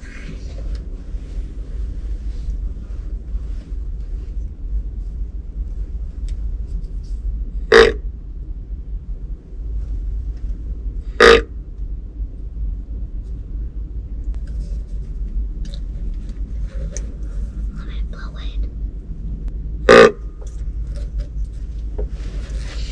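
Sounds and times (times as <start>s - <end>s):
deer grunt call: 7.7s - 8.0s, 11.2s - 11.5s.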